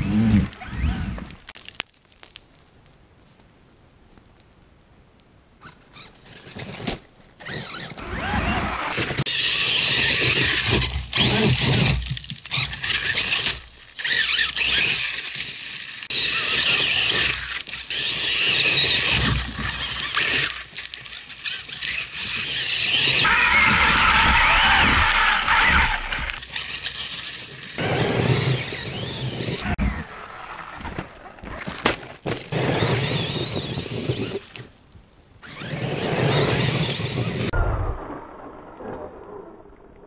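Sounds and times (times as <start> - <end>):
tyres scrabbling in loose soil: 0.0 - 24.7, 26.4 - 37.6
electric motor whining: 22.1 - 29.8.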